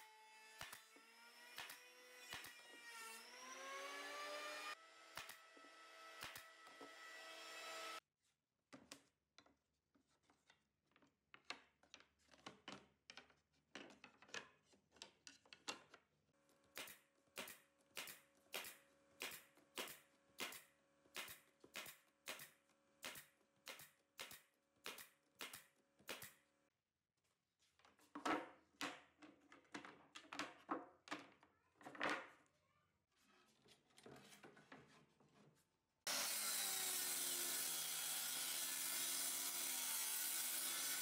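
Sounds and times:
nail gun shots into wood: 0:05.1 - 0:05.4, 0:06.2 - 0:06.5.

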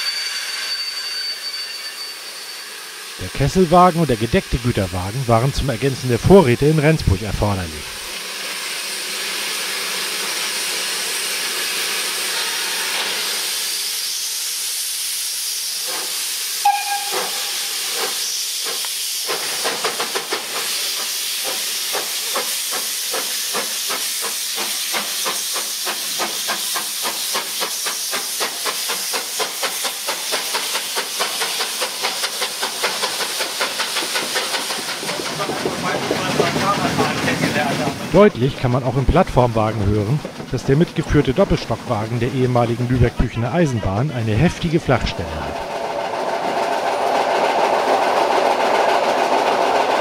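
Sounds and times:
steam whistle toot: 0:00.0 - 0:03.0, 0:16.5 - 0:18.6
steam locomotive exhaust beats: 0:00.0 - 0:43.1
steam hissing: 0:00.0 - 0:50.0.

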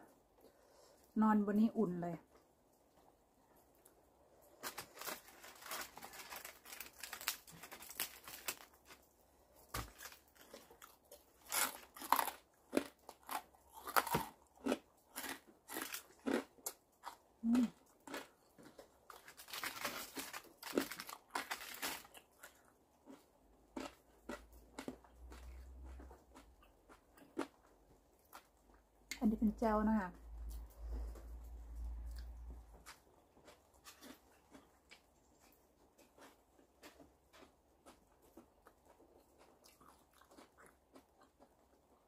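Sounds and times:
chewing and crunching: 0:02.8 - 0:29.2, 0:30.2 - 0:42.0
shrimp shells tearing and crackling: 0:04.6 - 0:09.0, 0:09.7 - 0:16.5, 0:18.0 - 0:22.5.

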